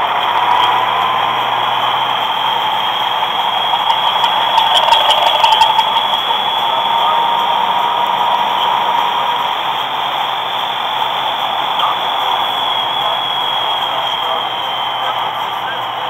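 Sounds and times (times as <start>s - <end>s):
road and wind noise: 0.0s - 13.0s
vehicle engine drone: 0.0s - 16.0s.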